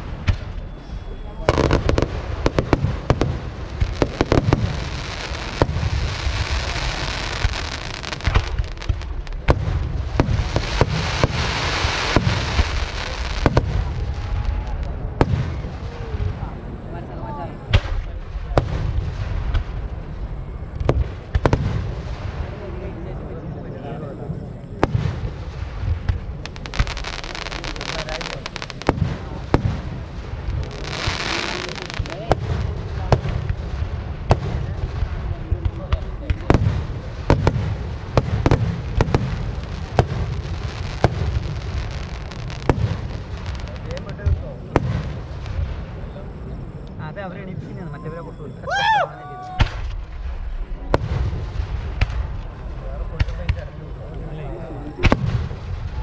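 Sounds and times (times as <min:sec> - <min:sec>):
firework bangs: 0:00.0 - 0:16.8, 0:17.5 - 0:23.3, 0:24.6 - 0:47.6, 0:49.6 - 0:53.9, 0:55.0 - 0:56.0
firework crackle: 0:00.0 - 0:23.3, 0:24.5 - 0:47.6, 0:49.6 - 0:56.0.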